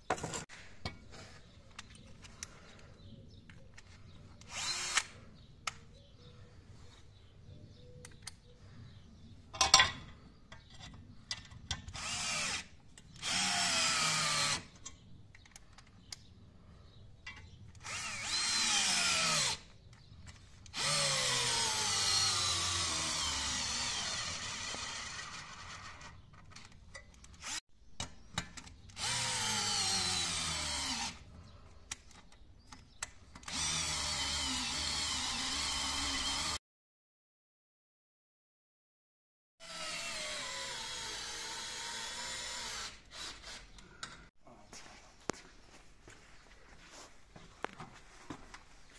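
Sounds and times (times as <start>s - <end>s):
drill driving screws: 4.4s - 5.2s, 11.9s - 14.8s, 17.8s - 19.7s, 20.7s - 26.2s, 27.4s - 27.6s, 28.9s - 31.2s, 33.4s - 36.6s, 39.6s - 43.8s.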